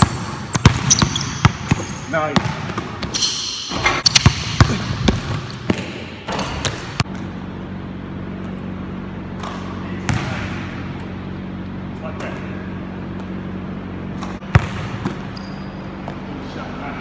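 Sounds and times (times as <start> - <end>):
basketball bouncing on wooden floor: 0.0 - 7.3, 14.2 - 15.3
steady hum: 0.0 - 17.0.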